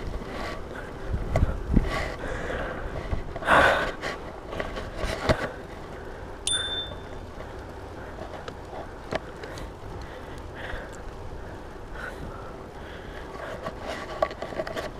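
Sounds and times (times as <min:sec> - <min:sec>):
wind on microphone: 0:00.0 - 0:03.4
bike rolling on pavement: 0:00.0 - 0:14.9
bicycle bell ding: 0:06.5 - 0:07.2.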